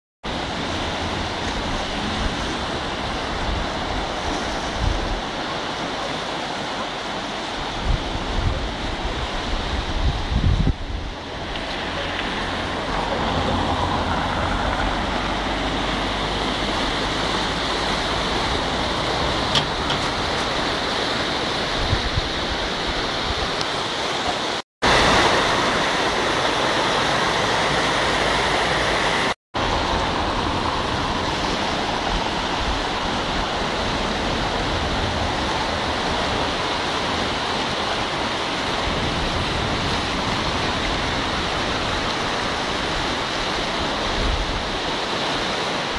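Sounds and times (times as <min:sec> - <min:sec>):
water rushing over a weir: 0:00.2 - 0:45.9.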